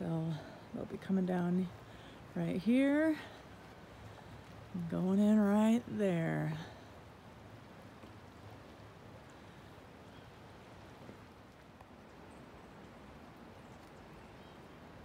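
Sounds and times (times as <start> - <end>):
flowing river: 0.0 - 15.0.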